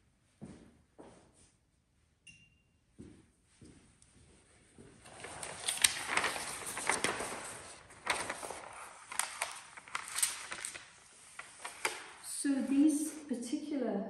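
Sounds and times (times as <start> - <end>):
paper sheets rustling and crackling: 5.0 - 13.2.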